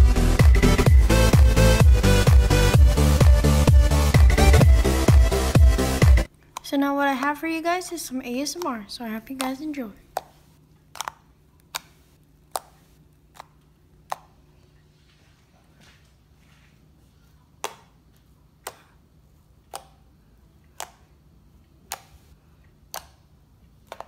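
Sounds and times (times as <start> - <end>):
soft slime squish: 8.3 - 24.0
slime popping and clicking: 10.2 - 14.4.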